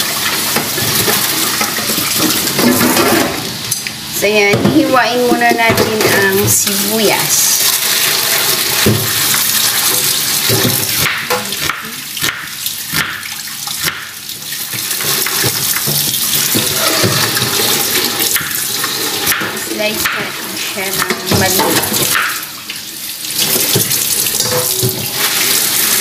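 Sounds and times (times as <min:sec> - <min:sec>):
knife chopping on wooden board: 0:10.5 - 0:14.1.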